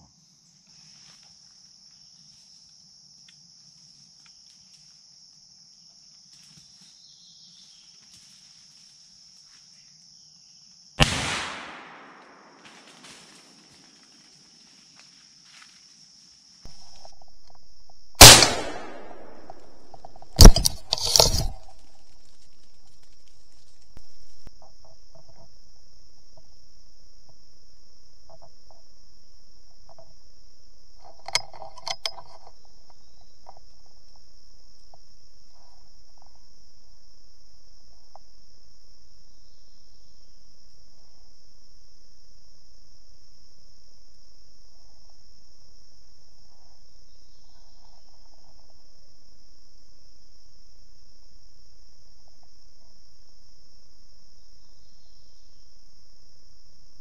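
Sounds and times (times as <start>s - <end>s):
insects chorus droning: 0.0s - 57.0s.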